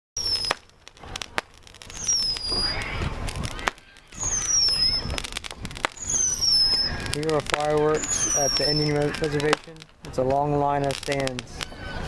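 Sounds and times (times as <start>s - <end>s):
firework pops and cracks: 0.2s - 11.9s
firework whistle falling in pitch: 1.9s - 5.2s, 5.9s - 7.2s, 7.9s - 9.6s.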